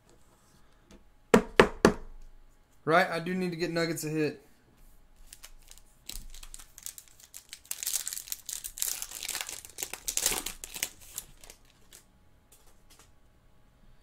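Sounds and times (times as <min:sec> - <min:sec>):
foil wrapper tearing and crinkling: 0:05.2 - 0:12.0.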